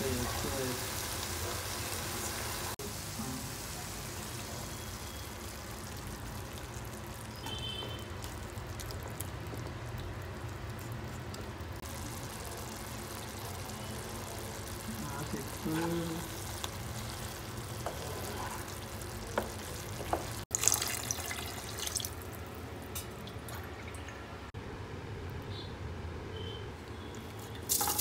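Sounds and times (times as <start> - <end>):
curry sizzling in a pan: 0.0 - 22.0, 27.7 - 28.0.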